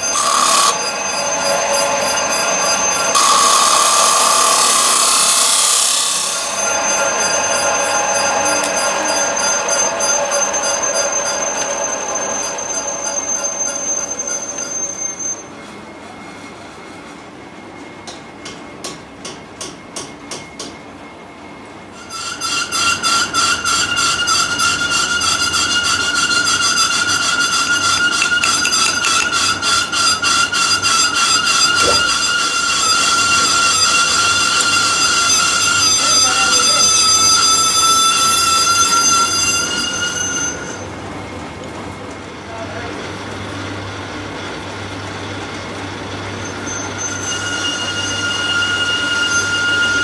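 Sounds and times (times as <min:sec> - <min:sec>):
chop saw cutting steel: 0:00.0 - 0:11.8, 0:25.8 - 0:39.1
high-pitched pulsing machine squeal: 0:00.0 - 0:17.1, 0:21.9 - 0:41.3, 0:46.2 - 0:50.0.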